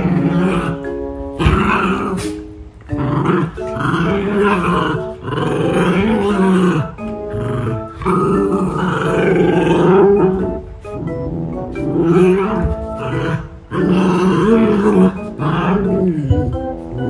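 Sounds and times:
dogs growling and snarling: 0:00.0 - 0:17.0
plucked background music: 0:00.0 - 0:17.0.

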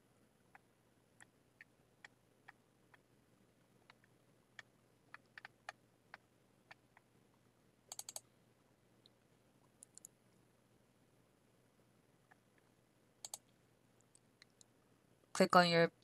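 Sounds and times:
computer mouse clicks: 0:03.8 - 0:07.1, 0:07.9 - 0:08.3, 0:09.0 - 0:10.2, 0:12.3 - 0:14.7.

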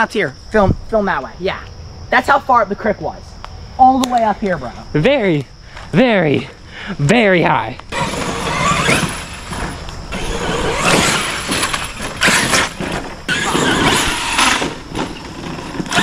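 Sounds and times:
electric motor whining: 0:07.9 - 0:16.0.

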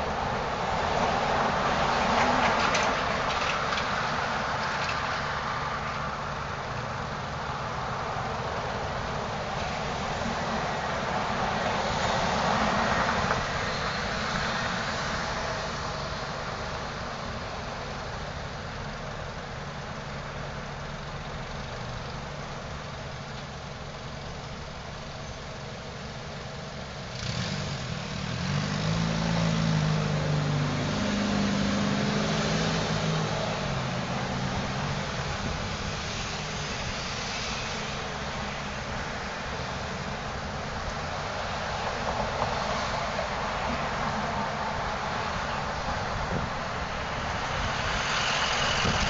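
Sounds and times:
car engine: 0:00.0 - 0:49.0
hum of passing cars: 0:00.0 - 0:49.0.

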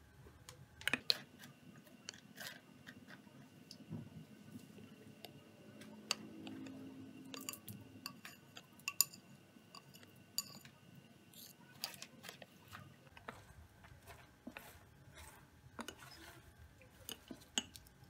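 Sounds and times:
metal spoon clinking in ceramic cup: 0:07.3 - 0:10.8.

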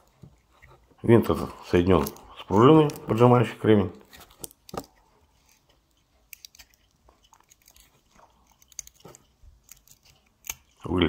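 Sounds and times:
small clicks and scrapes: 0:00.0 - 0:01.0, 0:04.0 - 0:10.8.

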